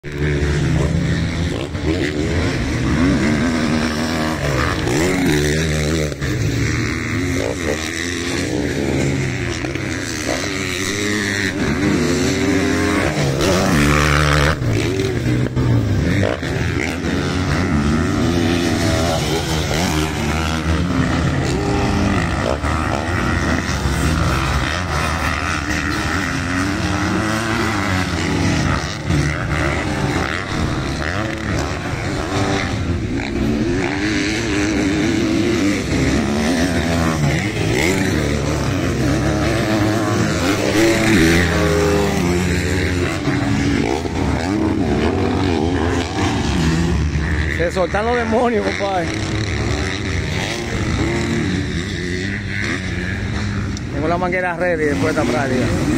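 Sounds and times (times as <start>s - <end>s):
dirt bike engines revving: 0.0s - 55.9s.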